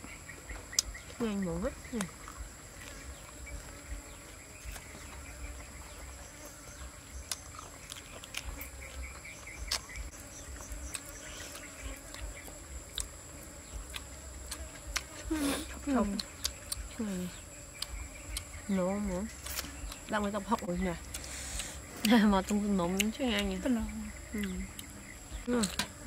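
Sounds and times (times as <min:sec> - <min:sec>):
insects chirring: 0:00.0 - 0:26.0
person chewing food: 0:02.1 - 0:15.4, 0:16.0 - 0:17.0, 0:17.7 - 0:18.6, 0:19.3 - 0:20.1, 0:21.0 - 0:23.5, 0:24.3 - 0:25.8.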